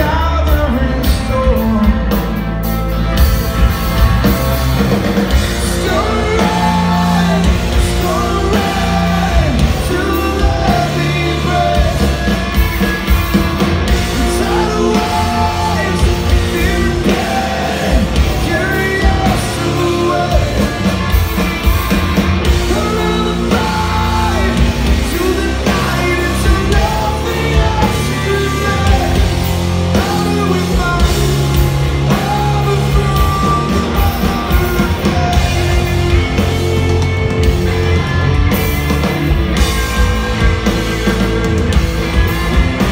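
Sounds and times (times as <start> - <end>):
person singing lead vocal: 0.0 - 2.5, 5.3 - 12.9, 13.8 - 21.2, 22.4 - 39.0
bass guitar: 0.0 - 42.9
drums: 0.0 - 42.9
electric guitars: 0.0 - 42.9.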